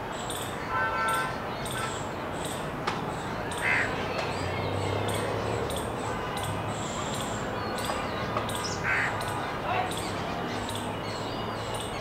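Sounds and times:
harsh caw: 3.6 - 3.9.

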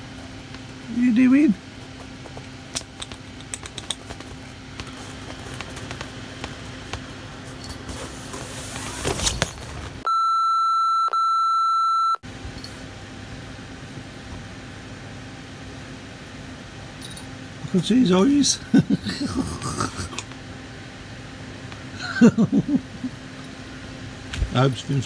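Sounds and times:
tent fabric rustling: 7.4 - 10.0
loud high censor beep: 10.1 - 12.2.

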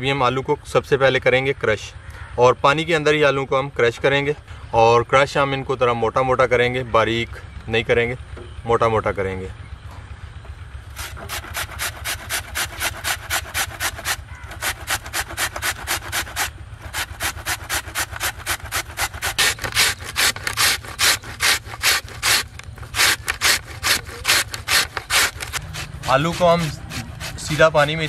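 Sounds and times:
potato scraping on a grater: 10.9 - 28.0.

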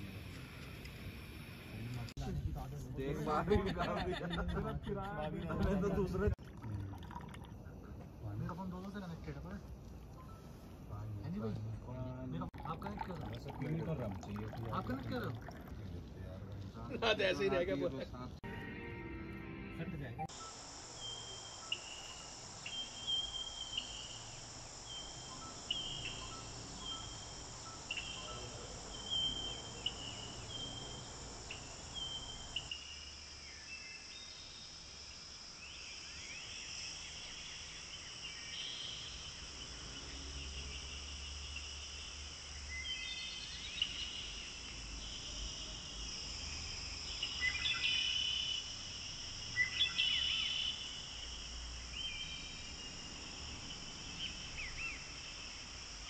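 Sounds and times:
bird chirps: 20.2 - 34.4, 42.6 - 45.5, 49.5 - 51.1
high insect drone: 20.3 - 56.0.

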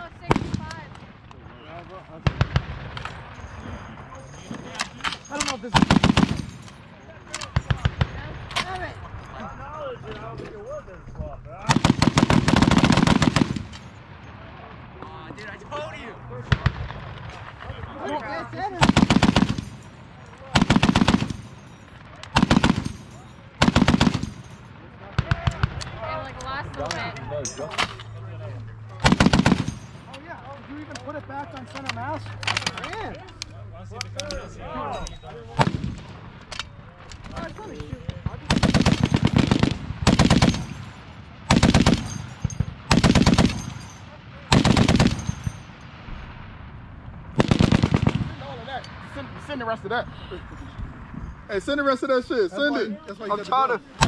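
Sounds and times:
heavy machine gun bursts: 20.5 - 21.6, 22.3 - 24.4, 29.0 - 30.0, 38.5 - 43.9, 44.5 - 45.6, 47.4 - 48.2.

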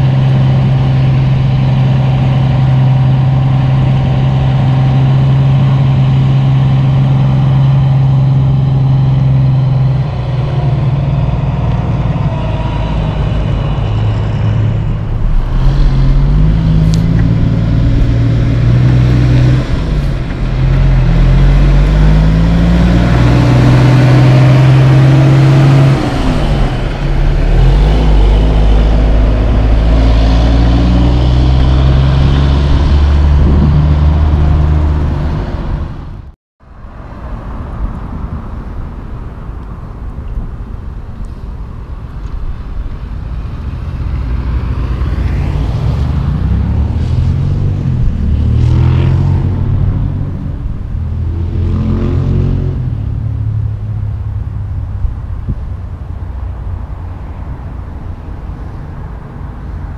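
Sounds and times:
diesel truck engine shifting gears: 0.0 - 36.3
quiet steady rumble: 13.4 - 18.9.

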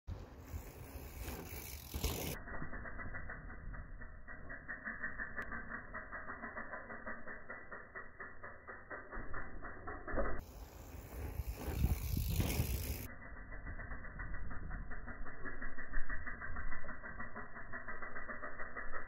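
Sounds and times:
bike freehub ticking: 0.1 - 19.0.

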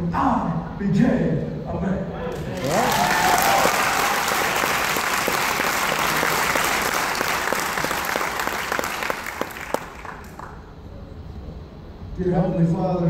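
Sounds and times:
audience applauding: 2.3 - 10.7.

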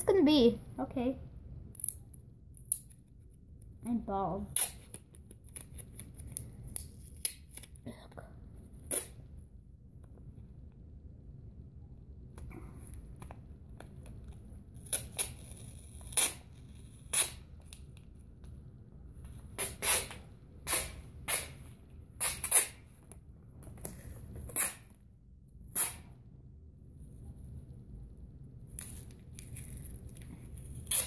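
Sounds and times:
tape ripping off roll: 4.5 - 6.2, 14.8 - 17.8, 19.5 - 23.0, 23.8 - 25.0, 25.7 - 26.2, 28.7 - 31.0.

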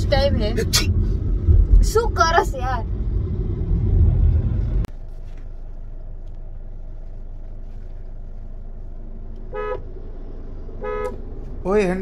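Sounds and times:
car engine and road drone: 0.0 - 12.0
car horn toot: 9.5 - 9.8, 10.8 - 11.2.

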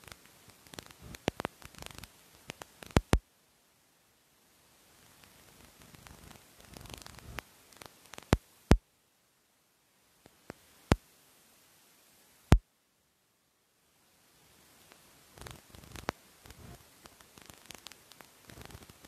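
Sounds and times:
loud sharp clicks: 0.0 - 3.2, 5.2 - 8.8
close rustling: 5.0 - 8.4.

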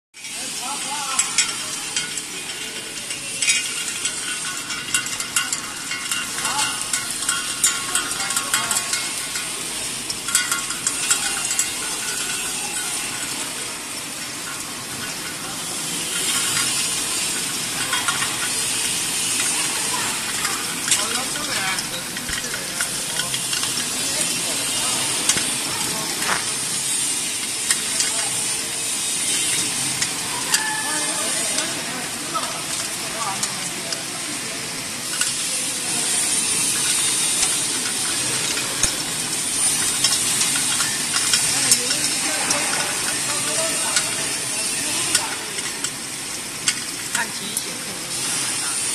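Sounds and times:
machine rattle and hiss: 0.2 - 48.9.

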